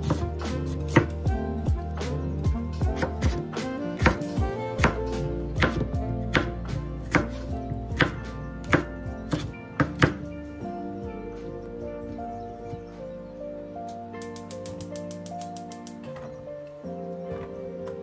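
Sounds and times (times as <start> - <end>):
knife chopping on cutting board: 0.0 - 0.2, 4.0 - 4.2, 4.8 - 5.0, 5.6 - 6.5, 7.1 - 7.4, 8.0 - 10.2
background music: 0.0 - 18.0.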